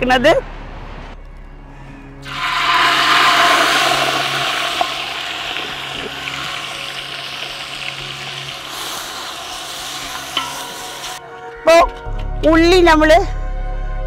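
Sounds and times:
onions sizzling in hot oil: 2.3 - 11.2.

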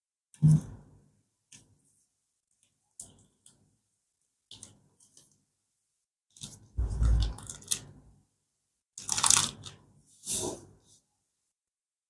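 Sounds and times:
low handling thump: 6.8 - 7.3.

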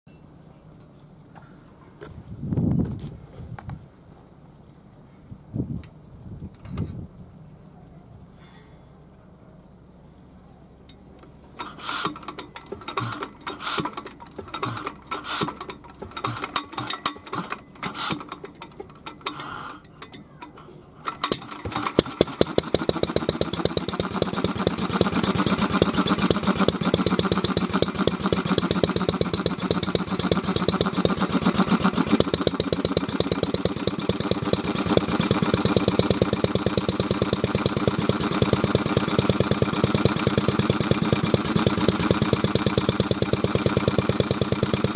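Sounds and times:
stationary engine starting knocks: 21.3 - 44.9
engine running with rapid beat: 21.6 - 44.9.

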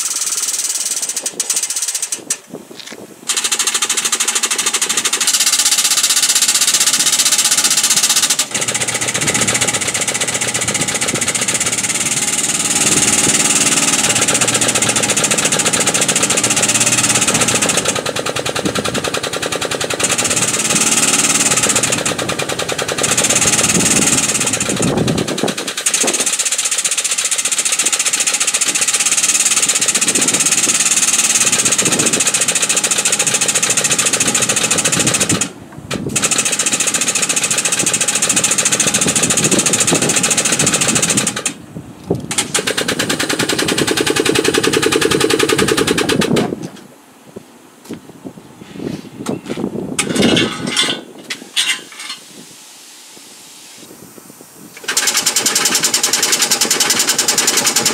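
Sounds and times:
air motors chattering: 0.0 - 2.5, 3.2 - 46.7, 54.8 - 57.9
exhaust air hissing: 0.0 - 42.6.

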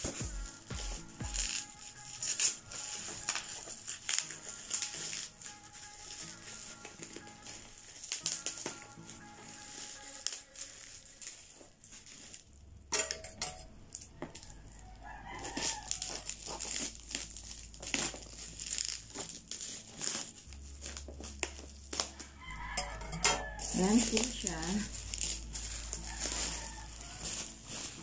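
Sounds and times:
bubble wrap crackling: 0.0 - 12.9, 13.7 - 28.0
rooster crowing: 14.0 - 16.8, 22.0 - 28.0.

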